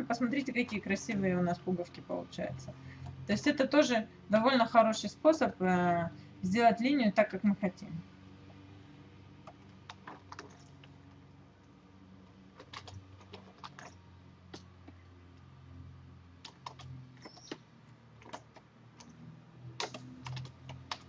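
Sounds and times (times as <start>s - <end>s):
low steady hum: 0.0s - 21.0s
keyboard and mouse clicks: 9.4s - 11.0s, 12.6s - 15.0s, 16.4s - 17.6s, 18.2s - 19.2s, 19.8s - 21.0s.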